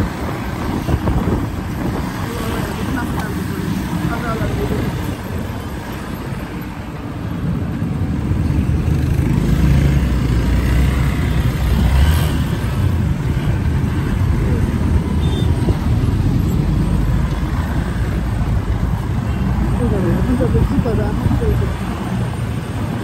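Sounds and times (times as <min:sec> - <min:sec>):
city road traffic rumble: 0:00.0 - 0:23.0.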